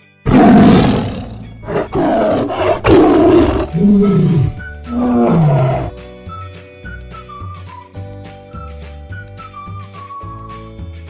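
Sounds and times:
soft background music: 0.0s - 11.0s
tiger roaring: 0.3s - 5.9s.

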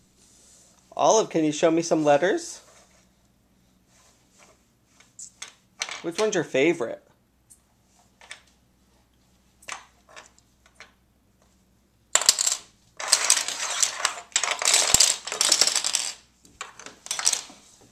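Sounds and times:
plastic toy letters clattering on floor: 12.2s - 17.5s.

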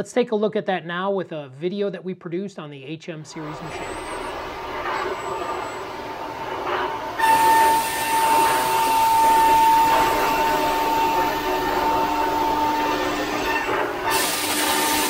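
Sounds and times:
milling cutter whine: 3.3s - 15.0s
hiss: 3.4s - 15.0s.

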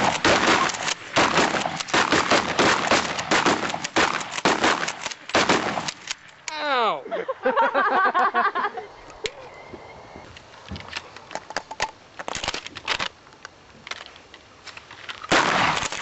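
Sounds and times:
loud gunshot: 0.0s - 6.0s, 15.3s - 16.0s.

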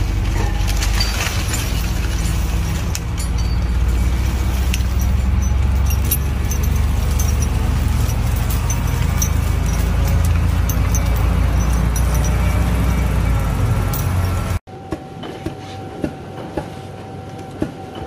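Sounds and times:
low engine rumble: 0.0s - 14.6s
metallic chain clinks: 0.2s - 14.6s.

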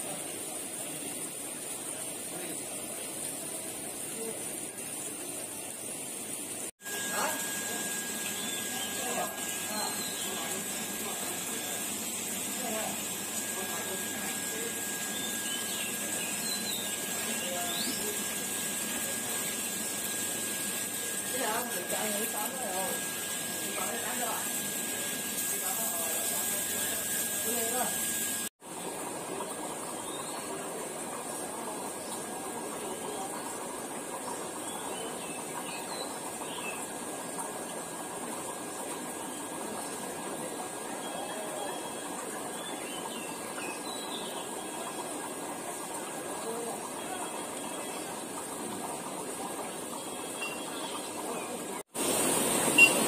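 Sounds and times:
aquarium filter hissing water: 0.0s - 53.0s
faint high chirps: 50.0s - 51.2s, 52.7s - 53.0s.

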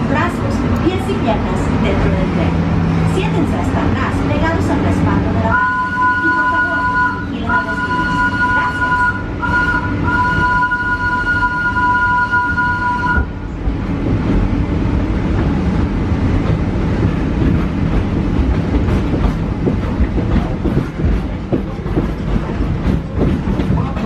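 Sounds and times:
train coach rumbling over track: 0.0s - 24.0s
steam train whistle: 5.5s - 13.4s.

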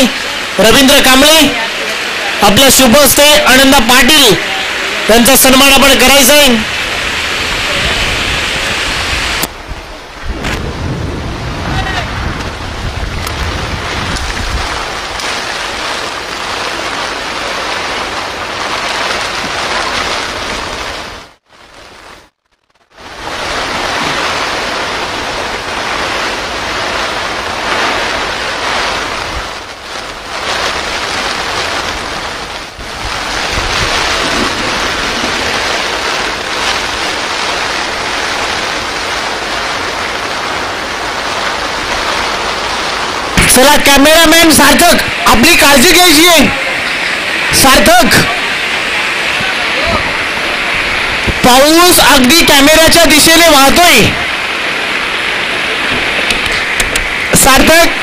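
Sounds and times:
heavy rain: 0.0s - 58.0s
wind buffeting microphone: 6.6s - 15.9s, 23.2s - 38.9s, 48.8s - 51.5s.

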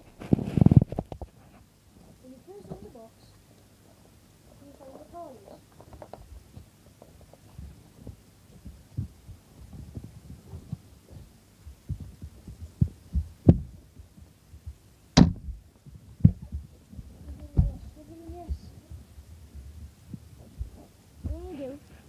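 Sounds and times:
cardboard box thuds and knocks: 15.2s - 15.6s.

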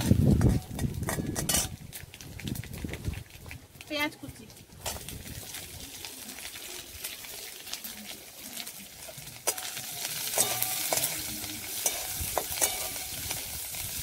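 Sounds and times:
onion sizzling in hot oil: 0.0s - 14.0s
metal spatula scraping pan: 0.4s - 1.8s, 9.4s - 13.4s.

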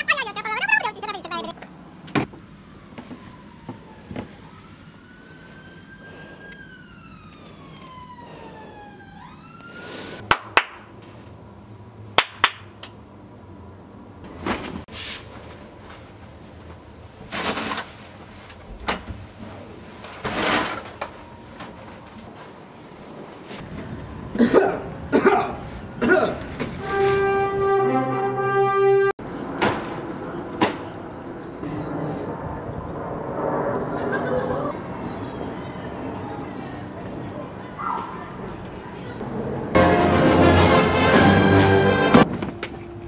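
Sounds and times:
siren wailing: 2.5s - 10.2s.

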